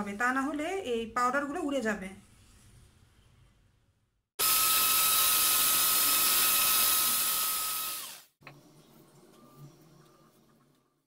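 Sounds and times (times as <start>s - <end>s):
electric hand mixer whining: 4.4s - 8.4s.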